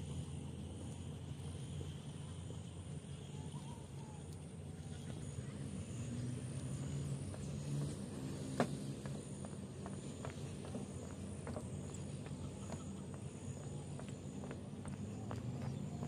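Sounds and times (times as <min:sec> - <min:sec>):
steady low rumble: 0:08.9 - 0:16.0.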